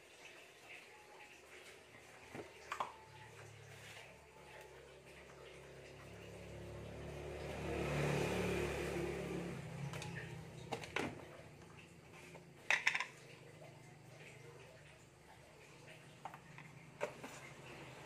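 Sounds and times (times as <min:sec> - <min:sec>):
motor vehicle passing by: 0:03.4 - 0:12.5
kitchenware clinking: 0:12.6 - 0:13.2.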